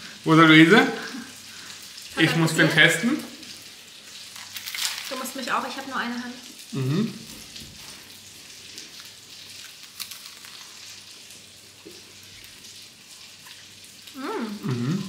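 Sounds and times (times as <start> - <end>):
person humming: 6.8 - 7.2, 14.2 - 15.0
people chewing: 6.8 - 11.0.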